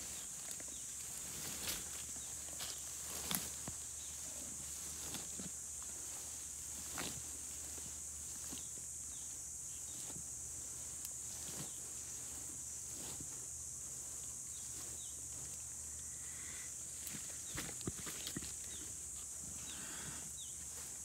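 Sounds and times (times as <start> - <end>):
crackles and snaps in dry leaves: 0.0 - 4.0.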